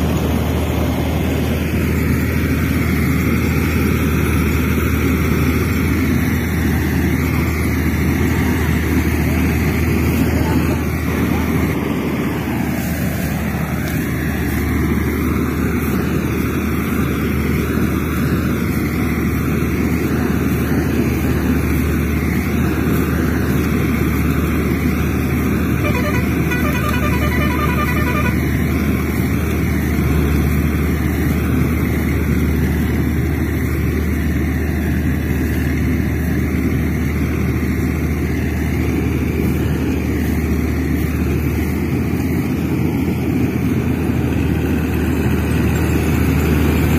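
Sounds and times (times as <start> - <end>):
engine-like drone: 0.0 - 46.9
pulsing horn-like tone: 25.7 - 28.8.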